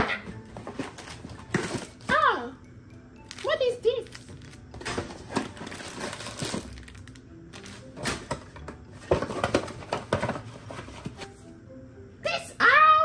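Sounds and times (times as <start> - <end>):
cardboard and paper crinkling: 3.3 - 8.3.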